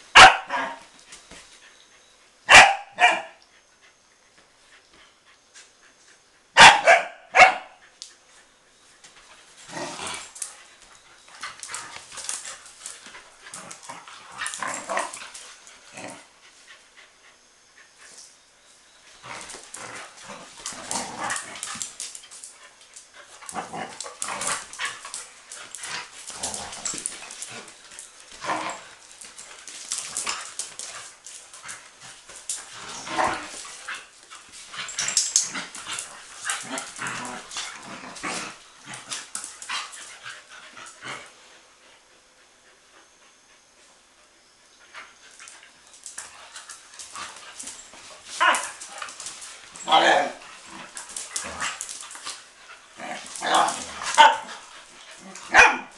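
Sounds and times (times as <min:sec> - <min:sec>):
dogs scuffling at play: 0:00.0 - 0:44.0, 0:44.7 - 0:55.9
dogs barking: 0:00.2 - 0:00.8, 0:02.5 - 0:03.4, 0:06.6 - 0:07.8, 0:53.4 - 0:54.7, 0:55.5 - 0:55.9.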